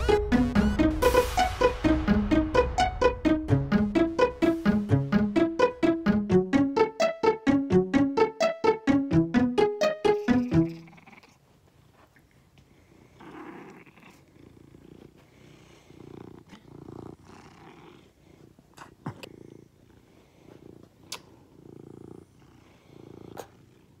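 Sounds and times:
cat purring: 10.4 - 11.4, 12.8 - 24.0.

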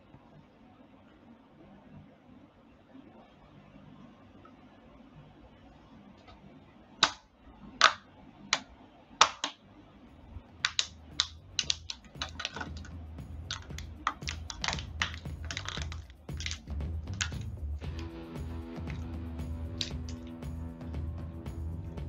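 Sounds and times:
toy being crushed under a clog: 8.6 - 9.6, 10.6 - 12.9, 13.5 - 17.5.

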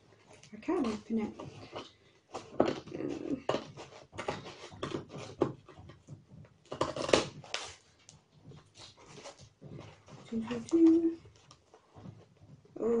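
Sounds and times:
scissors cutting cardboard: 0.0 - 11.6.

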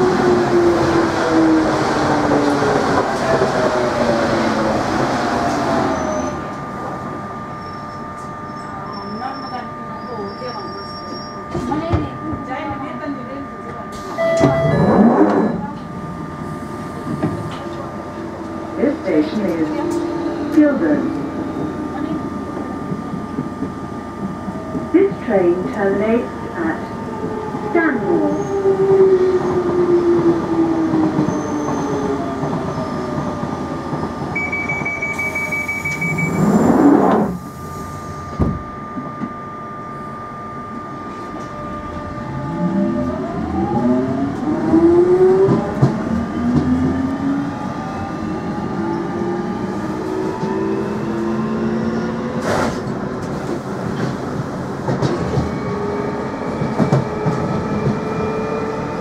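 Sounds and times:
train doors shutting: 13.7 - 39.4, 41.1 - 59.0
door-warning beeps: 14.0 - 15.8, 34.3 - 37.4.

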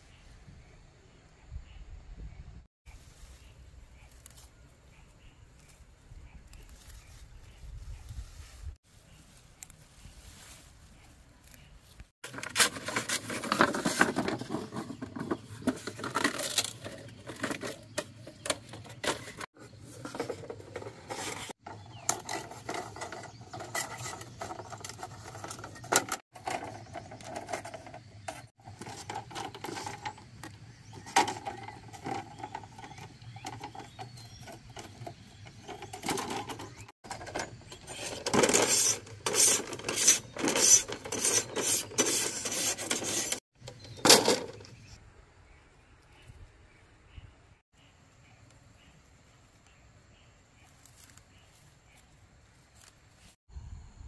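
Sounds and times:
machete scraping bamboo: 11.4 - 43.4.

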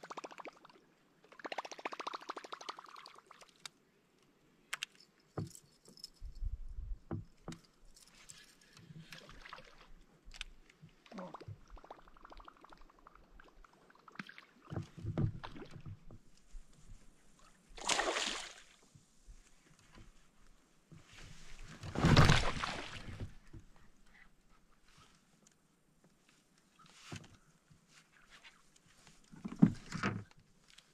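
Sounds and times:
water or rustling burst: 17.8 - 18.8, 21.8 - 23.3.

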